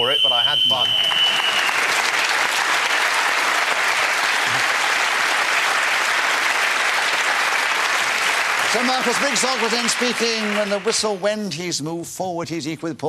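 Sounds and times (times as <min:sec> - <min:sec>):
high whistle note: 0:00.0 - 0:01.9
audience applauding: 0:00.0 - 0:11.7.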